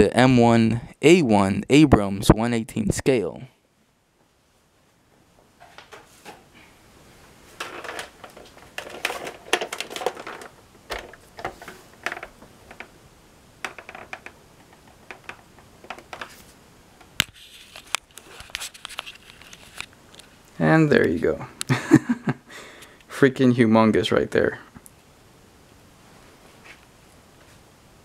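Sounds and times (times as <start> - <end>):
plastic toys clicking and knocking: 7.6 - 12.9, 13.6 - 16.3.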